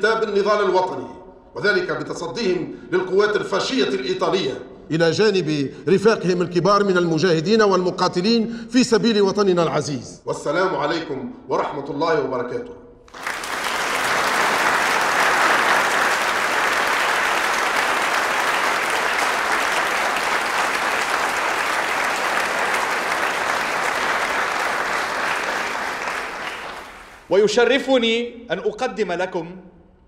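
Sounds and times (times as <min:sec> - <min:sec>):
audience applauding: 0:13.1 - 0:27.3.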